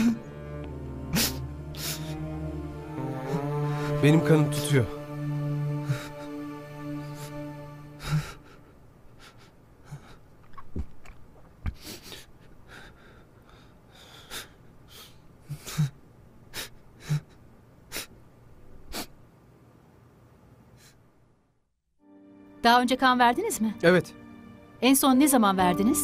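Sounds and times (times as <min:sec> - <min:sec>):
man sobbing: 0:00.0 - 0:00.4, 0:01.0 - 0:10.2
man breathing shakily while crying: 0:01.0 - 0:02.4.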